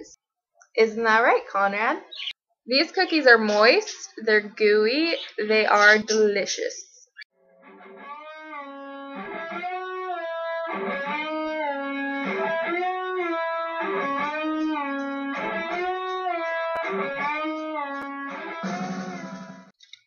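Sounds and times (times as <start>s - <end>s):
electric guitar riff with bent notes: 7.5s - 19.7s.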